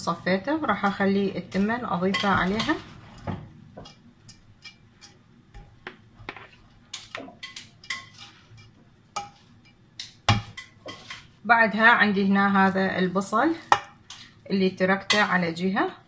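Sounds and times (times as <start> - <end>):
spoon tapping metal pot: 1.5 - 2.8, 3.7 - 11.2.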